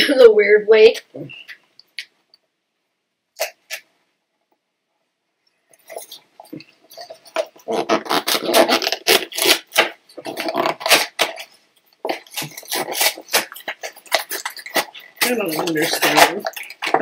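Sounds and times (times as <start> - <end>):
plastic wrapper crinkling: 5.7 - 17.0.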